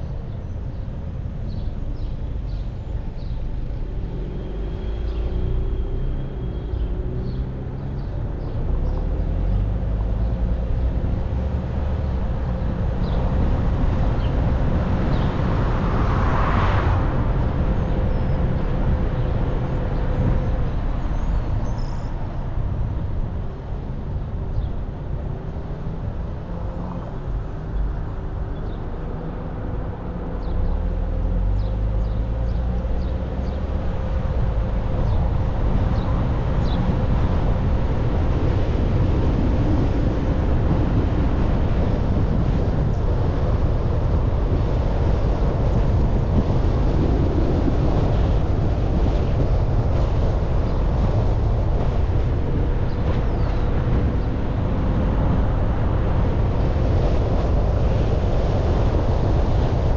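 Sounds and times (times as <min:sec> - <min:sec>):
low engine rumble: 0:00.0 - 0:59.9
road and tyre noise: 0:00.0 - 0:59.9.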